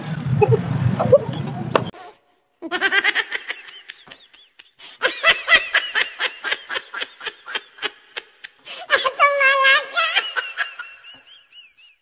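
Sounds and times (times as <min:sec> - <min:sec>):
high-pitched giggling laughter: 0:02.6 - 0:12.0.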